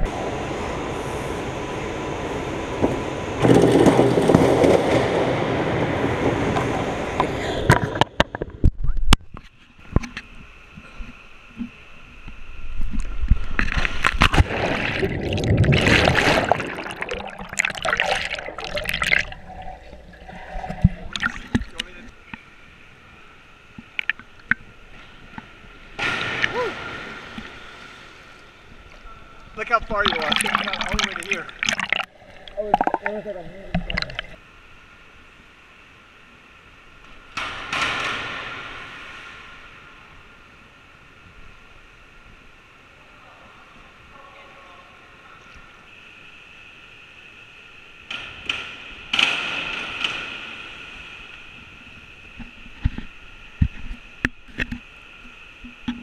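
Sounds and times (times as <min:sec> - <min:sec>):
rumbling noise: 0:12.6 - 0:22.1, 0:29.6 - 0:34.4
diver splashing into pool: 0:13.8 - 0:19.8.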